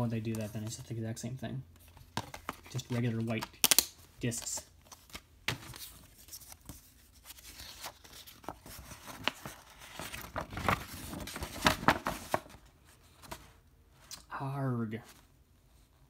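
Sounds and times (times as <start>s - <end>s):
paper rustling and crinkling: 4.2s - 13.6s.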